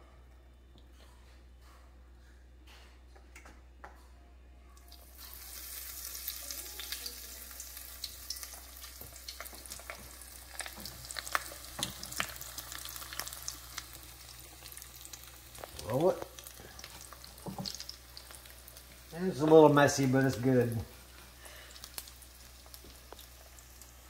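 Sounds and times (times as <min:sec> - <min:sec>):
food frying in oil: 0:04.9 - 0:24.0.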